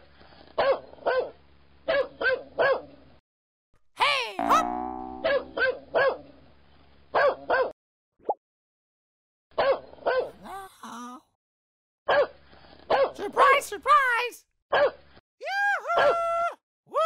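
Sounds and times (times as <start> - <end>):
small dog barking: 0.6 - 2.9, 5.2 - 6.2, 7.2 - 7.7, 9.6 - 10.4, 12.1 - 12.3, 12.9 - 13.2, 14.7 - 15.0.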